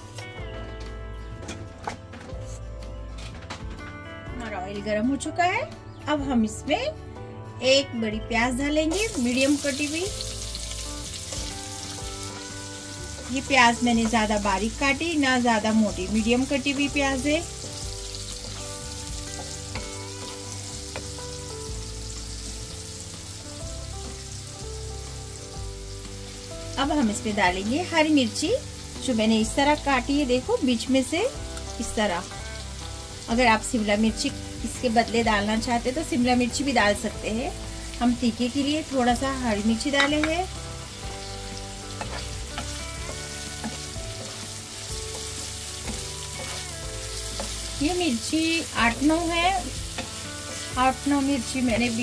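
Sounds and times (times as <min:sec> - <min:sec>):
soft background music: 0:00.0 - 0:52.0
onions sizzling in oil: 0:08.9 - 0:52.0
wooden spoon knocking on pan: 0:39.9 - 0:40.5.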